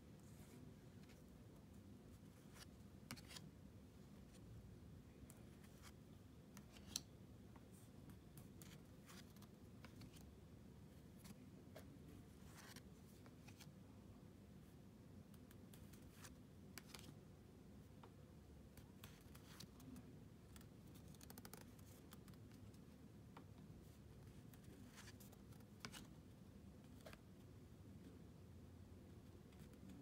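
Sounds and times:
cards swishing and flicking: 0:02.5 - 0:03.4.

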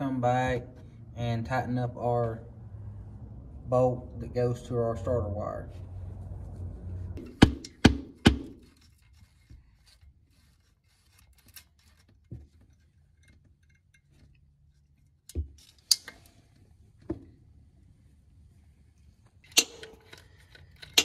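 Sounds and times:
tool handling sounds: 0:07.2 - 0:17.3, 0:19.0 - 0:21.0.

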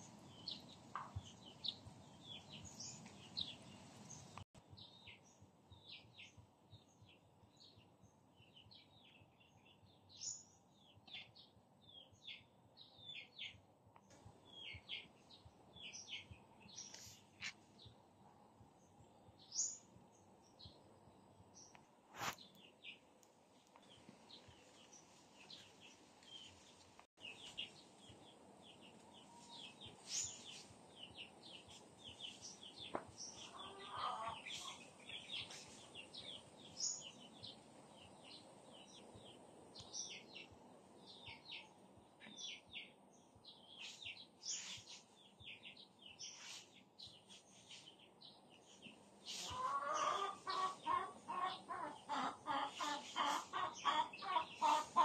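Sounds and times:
small birds chirping: 0:00.0 - 0:55.0
chicken clucking: 0:32.8 - 0:34.8, 0:49.3 - 0:55.0.

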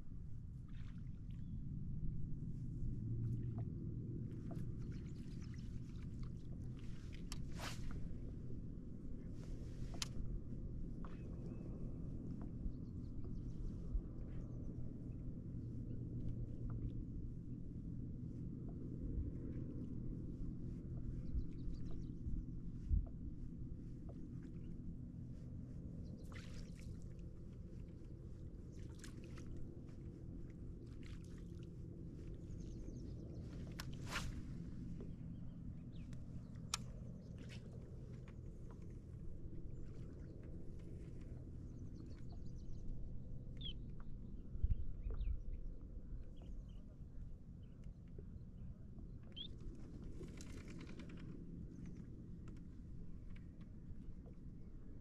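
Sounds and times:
steady low rumble: 0:00.0 - 0:55.0
water lapping against kayak hull: 0:02.4 - 0:12.6
small splashes: 0:26.2 - 0:27.2.

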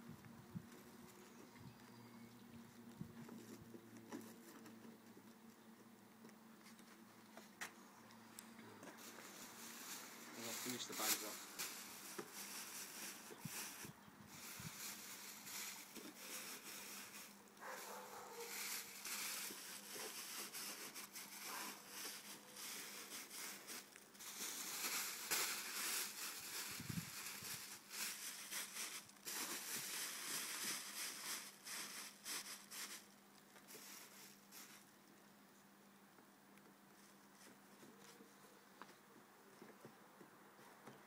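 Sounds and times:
plastic bags rustling: 0:08.8 - 0:34.9.

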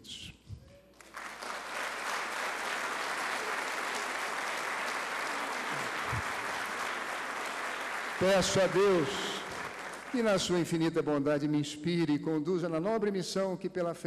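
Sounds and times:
audience applause: 0:01.0 - 0:10.6.

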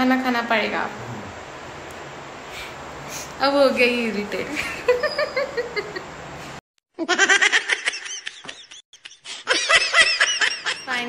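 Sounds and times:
high-pitched laughter: 0:07.0 - 0:11.0.

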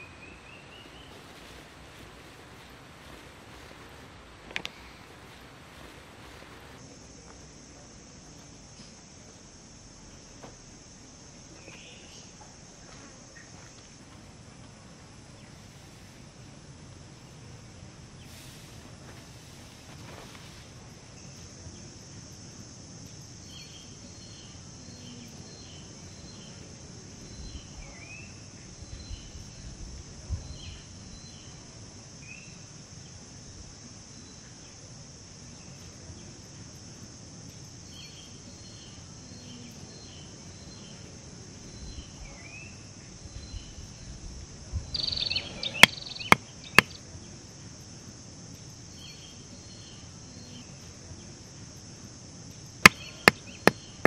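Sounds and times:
faint handling noises: 0:00.0 - 0:07.5, 0:18.2 - 0:21.5
brief rustle: 0:00.8 - 0:06.8
high-pitched insect drone: 0:44.9 - 0:47.0
short chirping calls: 0:44.9 - 0:47.0.

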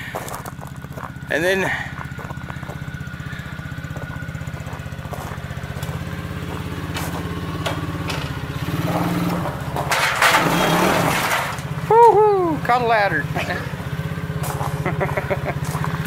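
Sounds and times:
atv engine running: 0:00.0 - 0:16.0.

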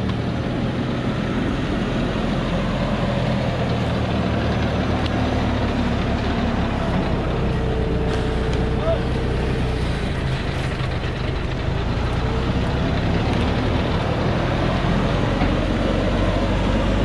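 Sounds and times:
truck diesel engine droning: 0:00.0 - 0:17.0.

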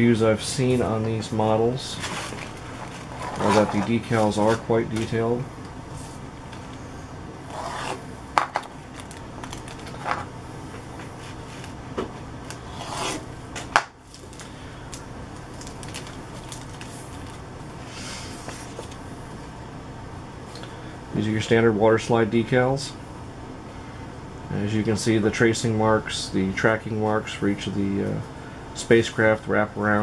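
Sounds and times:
paper and plastic rustling: 0:02.0 - 0:05.2, 0:08.9 - 0:10.2, 0:15.5 - 0:17.4.

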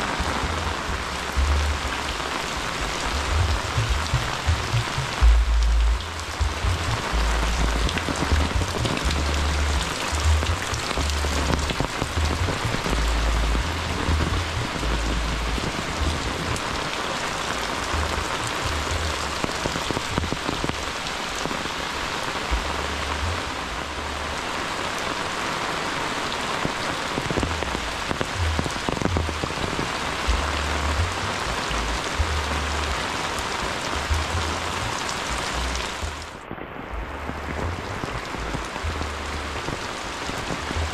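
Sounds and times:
heavy rain pattering: 0:00.0 - 0:40.9
low rumble: 0:00.1 - 0:16.7, 0:30.2 - 0:33.0, 0:34.0 - 0:40.9.

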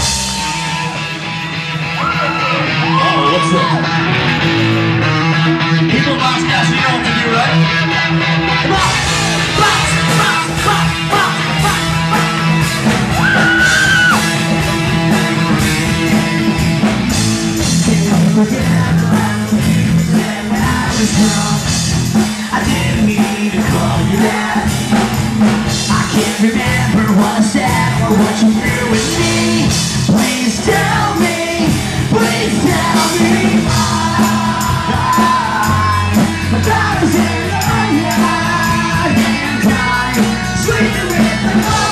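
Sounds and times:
live rock band playing: 0:00.0 - 0:41.9
person singing and shouting: 0:01.9 - 0:04.2, 0:08.6 - 0:14.6.

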